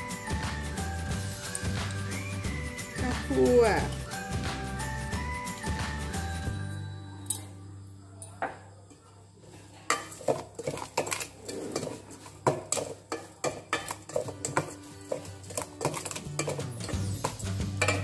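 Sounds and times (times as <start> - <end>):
spoon clinking in metal bowl: 9.9 - 18.0.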